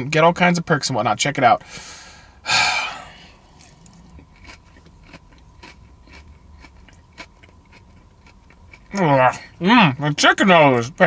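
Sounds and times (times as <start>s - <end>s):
person chewing crunchy salad: 2.1s - 9.6s.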